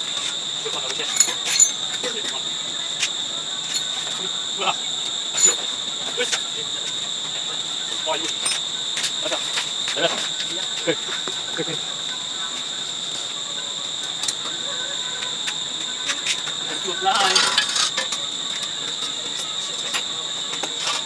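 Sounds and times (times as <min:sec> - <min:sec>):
high-pitched insect drone: 0:00.0 - 0:21.0
metal scraping and knocking: 0:17.2 - 0:18.1.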